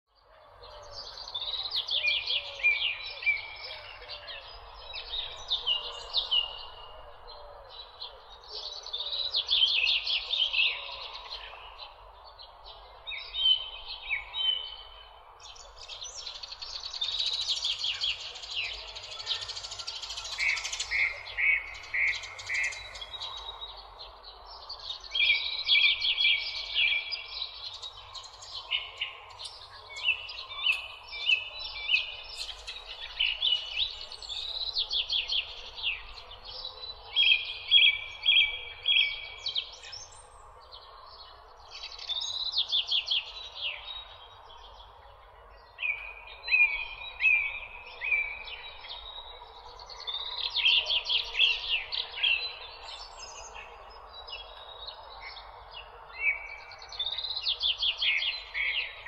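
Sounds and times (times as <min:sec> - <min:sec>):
birds chirping and trilling: 0:00.2 - 0:59.0.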